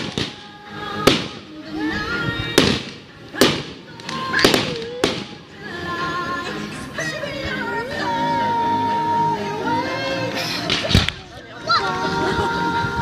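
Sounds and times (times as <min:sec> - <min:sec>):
firework bangs: 0:00.0 - 0:01.6, 0:02.5 - 0:05.4, 0:10.7 - 0:11.2
loud music: 0:00.0 - 0:13.0.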